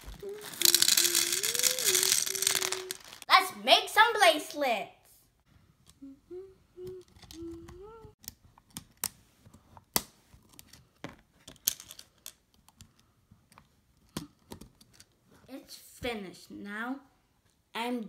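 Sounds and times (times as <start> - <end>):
child humming: 0.0 - 3.2, 6.0 - 8.2
plastic beads clicking: 0.0 - 3.3.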